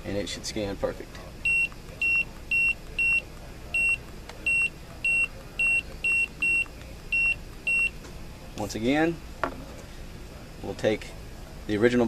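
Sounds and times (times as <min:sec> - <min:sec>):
barcode scanner beeps: 0:01.4 - 0:08.0.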